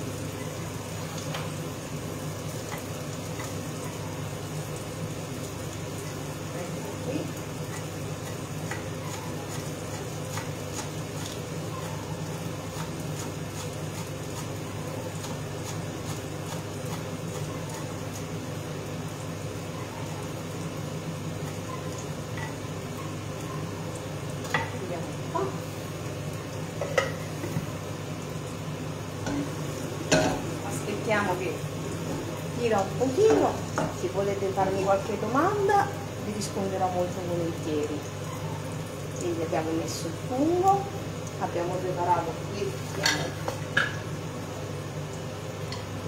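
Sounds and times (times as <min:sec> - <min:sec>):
stove hiss: 0:00.0 - 0:46.0.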